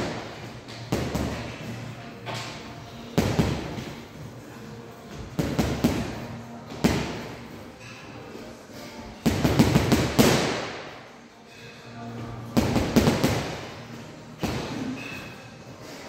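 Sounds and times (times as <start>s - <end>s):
boxing gloves punching heavy bag: 9.2s - 10.7s.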